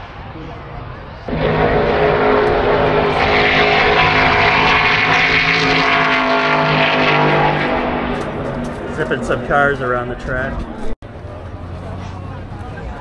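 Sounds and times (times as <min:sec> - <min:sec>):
racing engine at high revs: 0:01.3 - 0:13.0.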